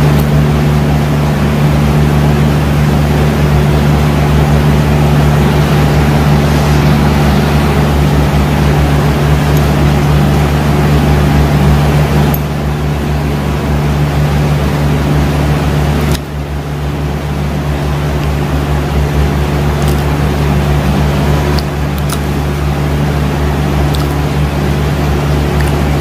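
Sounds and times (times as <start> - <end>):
loud low motor hum: 0.0 - 26.0.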